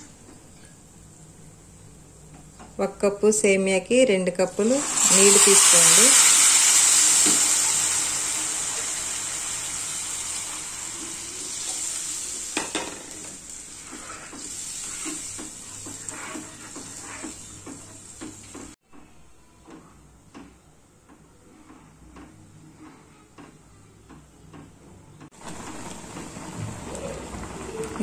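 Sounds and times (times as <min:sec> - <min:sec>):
water sizzling in a hot pan: 0:04.6 - 0:18.8, 0:25.3 - 0:28.0
spoon stirring and knocking pan: 0:11.6 - 0:18.8.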